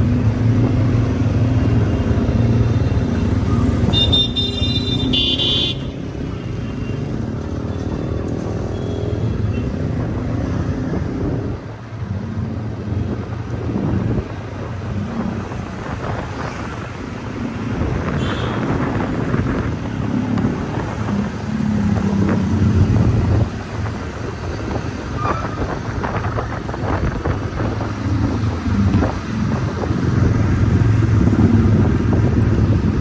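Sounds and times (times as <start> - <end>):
road noise: 0.0 - 33.0
wind rumbling on microphone: 9.9 - 33.0.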